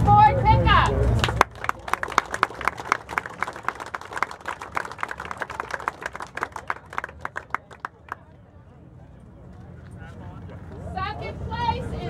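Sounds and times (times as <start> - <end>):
crowd applauding: 1.2 - 8.3.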